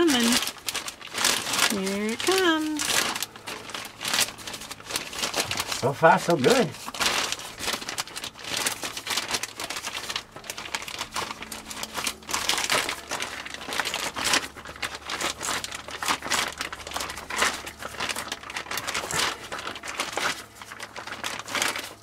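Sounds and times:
plastic bag crinkling: 0.0s - 22.0s.

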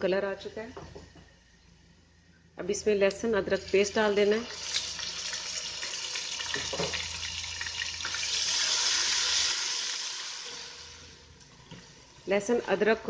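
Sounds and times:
paste sizzling in hot oil: 4.4s - 11.1s.

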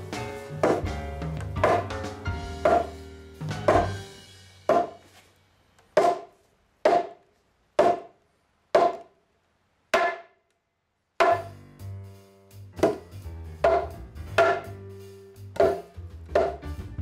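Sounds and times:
hammer knocking on wood: 1.6s - 2.0s, 2.6s - 2.9s, 3.6s - 3.9s, 4.7s - 5.0s, 12.8s - 13.0s, 13.6s - 14.7s.

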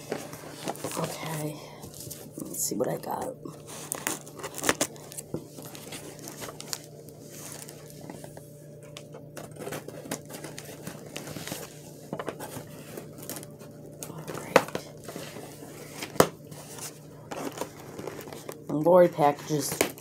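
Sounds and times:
packing material rustling: 3.0s - 20.0s
cardboard box being opened: 3.6s - 8.2s, 14.3s - 18.6s.

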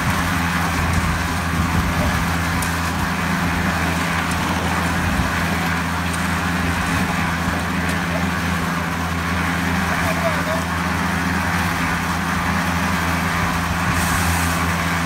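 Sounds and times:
concrete mixer motor humming: 0.0s - 15.0s
mix churning in turning drum: 0.0s - 15.0s.

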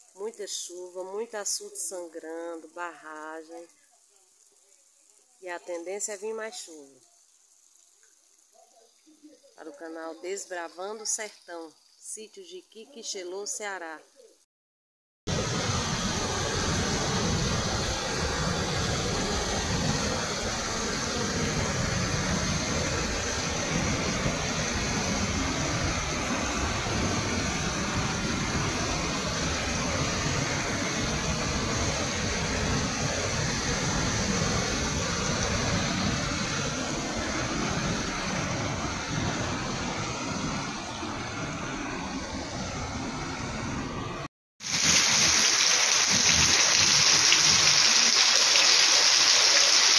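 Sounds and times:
rain hiss: 0.0s - 14.3s, 15.3s - 43.3s, 44.6s - 49.9s
water rushing over spillway: 15.3s - 40.2s, 44.6s - 49.9s.

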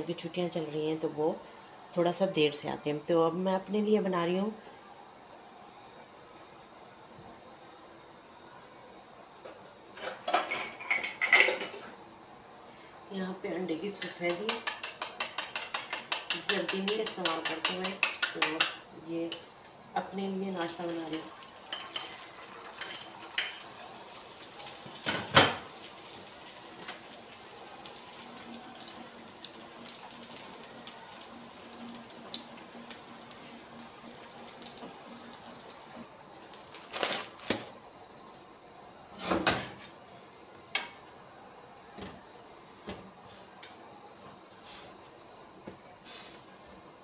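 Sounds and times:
utensils clinking on cookware: 10.0s - 11.9s, 14.0s - 18.8s, 20.6s - 22.2s, 22.8s - 23.7s.

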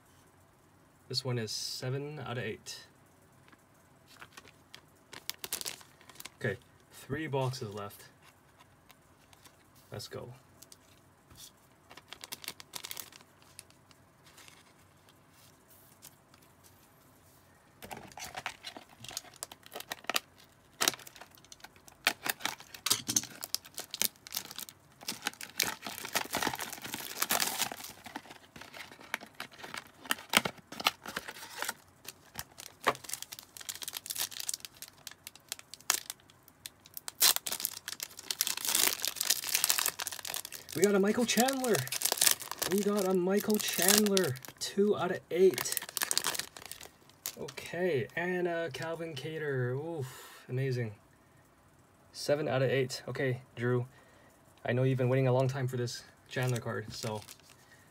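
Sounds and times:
foil packs ripping and crinkling: 5.1s - 6.6s, 11.9s - 14.6s, 17.8s - 44.6s, 45.4s - 47.4s, 56.5s - 57.6s.

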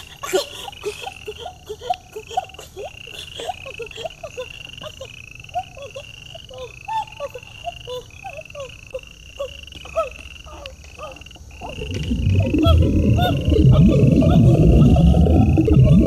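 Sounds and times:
frogs croaking: 0.0s - 16.0s
high rising chirp: 11.6s - 16.0s.

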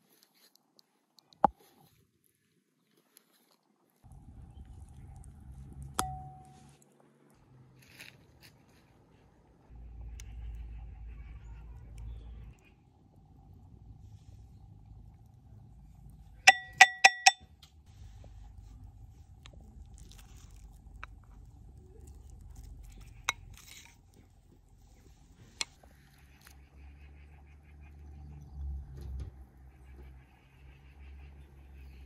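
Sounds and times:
hard object clinking on dish: 16.5s - 17.4s.

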